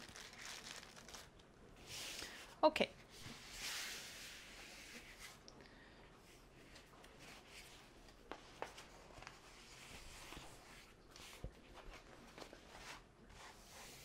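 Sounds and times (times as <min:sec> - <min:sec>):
rustling and crinkling plastic film: 0:00.0 - 0:02.5, 0:06.8 - 0:13.6.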